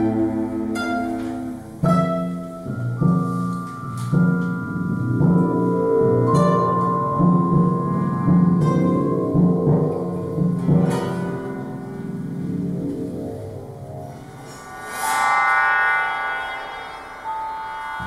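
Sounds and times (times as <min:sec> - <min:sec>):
contemporary ensemble music: 0:00.0 - 0:18.0
low pulsing note: 0:00.0 - 0:18.0
long held high tones: 0:11.6 - 0:18.0.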